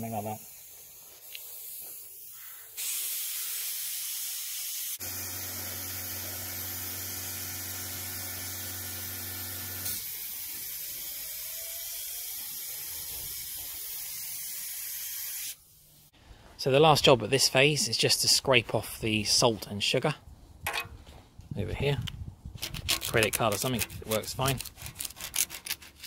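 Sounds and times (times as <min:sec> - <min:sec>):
paint spray gun hissing: 0:00.1 - 0:15.6.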